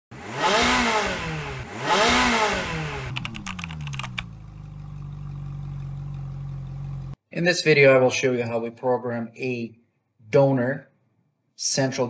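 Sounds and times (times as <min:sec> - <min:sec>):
engine revving: 0:00.1 - 0:07.2
keyboard typing clicks: 0:03.1 - 0:04.2
low engine-like hum: 0:04.0 - 0:07.2.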